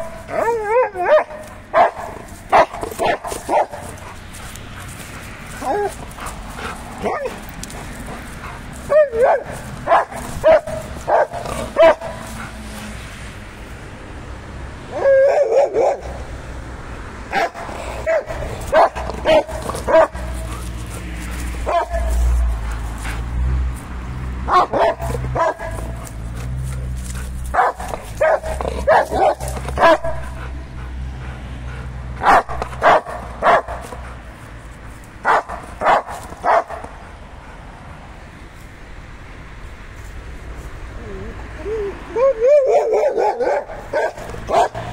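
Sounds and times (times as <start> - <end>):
dog yipping: 0.0 - 4.1, 5.5 - 6.0, 7.0 - 7.4, 8.9 - 12.2, 24.5 - 25.8, 27.5 - 30.2, 42.1 - 44.8
dog whining: 5.6 - 6.0.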